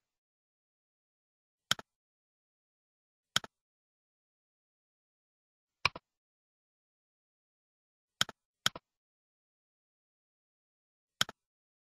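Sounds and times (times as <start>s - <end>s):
computer mouse clicks: 1.7s - 1.9s, 3.3s - 3.6s, 5.8s - 6.1s, 8.2s - 8.9s, 11.2s - 11.4s.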